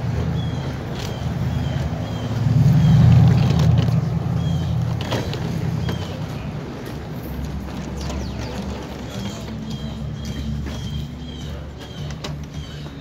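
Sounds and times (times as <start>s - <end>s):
vehicle engine rumbling past: 0.0s - 13.0s.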